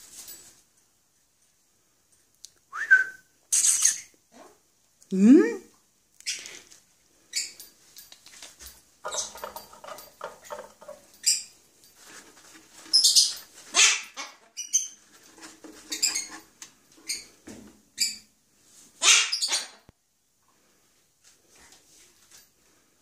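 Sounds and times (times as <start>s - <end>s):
cockatoo squawking: 19.0s - 19.8s.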